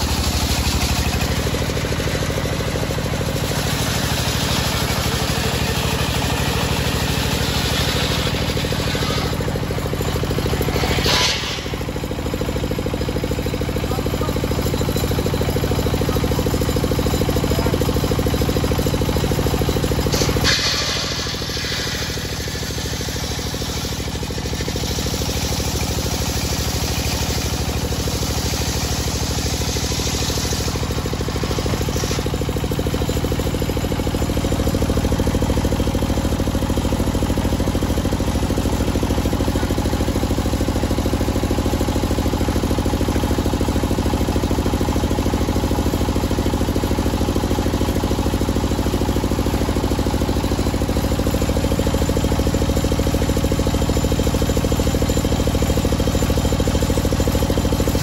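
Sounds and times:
saw engine running: 0:00.0 - 0:58.0
saw blade cutting wood: 0:03.4 - 0:12.6, 0:20.0 - 0:33.1.

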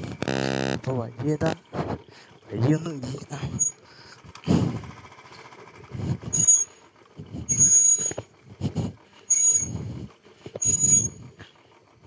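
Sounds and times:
motorcycle engine rumble: 0:00.0 - 0:12.0
motorcycle brakes squealing: 0:03.4 - 0:03.9, 0:06.2 - 0:08.4, 0:09.2 - 0:09.9, 0:10.6 - 0:11.7.

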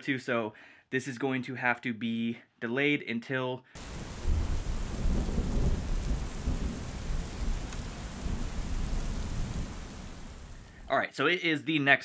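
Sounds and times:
heavy rain pouring: 0:03.8 - 0:10.9.

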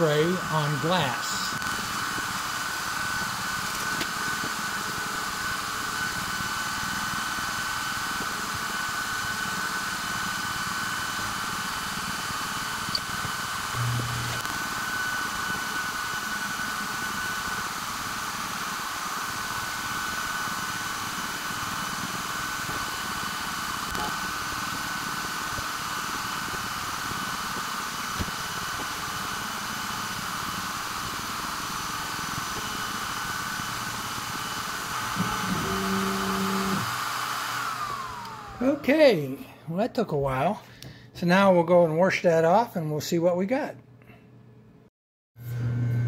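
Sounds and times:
laser engraver hiss and hum: 0:00.0 - 0:37.0
stepper motors buzzing: 0:12.9 - 0:14.8, 0:32.4 - 0:37.0.

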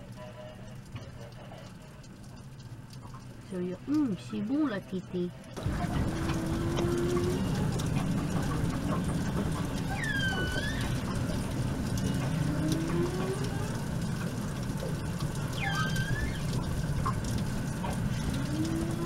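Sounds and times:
steady low rumble: 0:00.0 - 0:19.0
whale high squeals: 0:09.8 - 0:11.1, 0:15.5 - 0:16.6.

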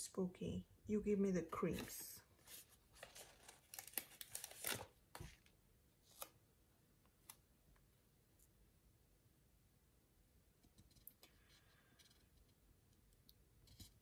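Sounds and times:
sticker peeling paper rustle: 0:01.7 - 0:05.4.

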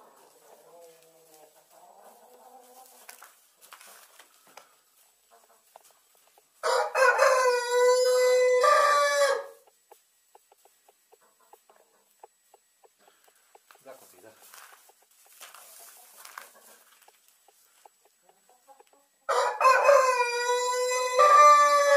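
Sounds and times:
hens clucking softly: 0:04.2 - 0:19.3
rooster crowing: 0:06.6 - 0:09.6, 0:19.3 - 0:21.9.

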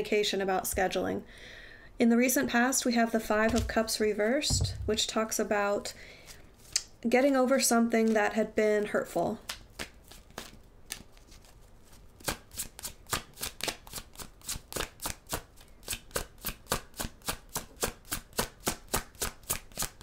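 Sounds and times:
cards being shuffled: 0:09.4 - 0:16.5.

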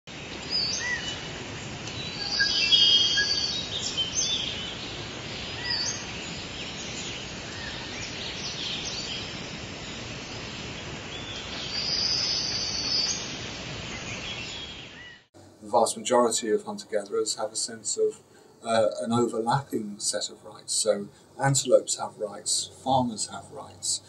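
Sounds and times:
steady background hiss: 0:00.1 - 0:24.0
birds chirping and whistling: 0:02.0 - 0:09.4, 0:11.1 - 0:13.3, 0:13.9 - 0:15.3.

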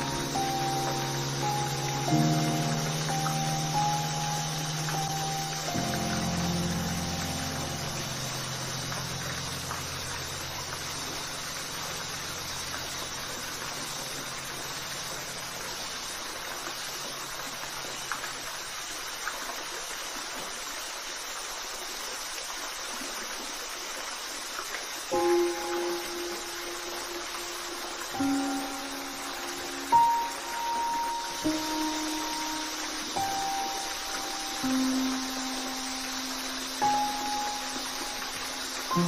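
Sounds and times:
low held background music: 0:00.0 - 0:16.2, 0:25.1 - 0:39.0
waterfall rushing: 0:00.0 - 0:39.0.

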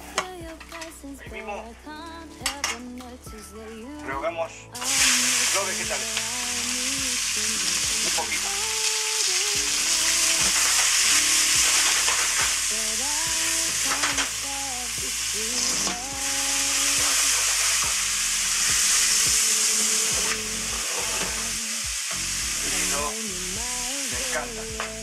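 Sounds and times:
stirring clicks: 0:01.9 - 0:04.1
vegetables sizzling in a pot: 0:04.8 - 0:25.0.

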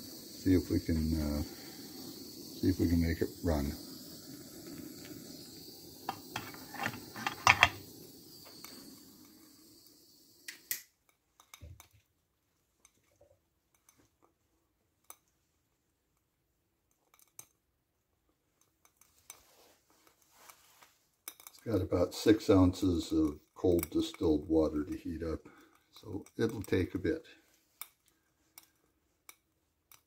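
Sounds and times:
torch lighter hissing: 0:00.0 - 0:11.0, 0:21.6 - 0:28.0.

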